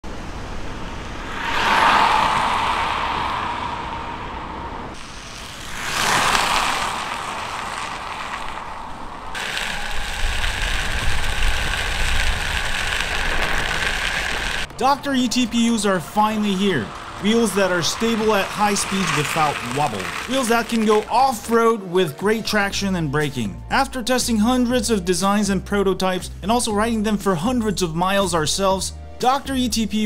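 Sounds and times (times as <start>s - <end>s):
electric skateboard rolling: 0.1s - 21.6s.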